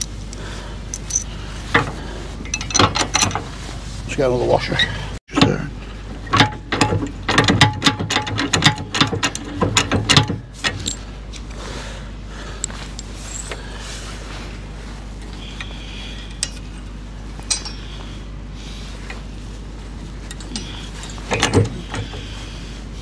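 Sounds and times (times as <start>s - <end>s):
metal washers clinking: 0.0s - 1.3s, 2.4s - 3.4s, 6.4s - 11.2s, 12.6s - 13.6s, 16.3s - 16.7s, 17.4s - 18.0s, 20.2s - 22.0s
low hum: 8.7s - 23.0s.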